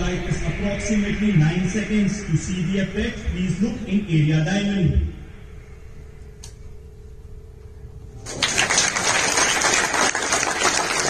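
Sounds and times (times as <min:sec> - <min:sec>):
low rumble with hum: 0:00.0 - 0:11.0
audience applauding: 0:08.2 - 0:11.0.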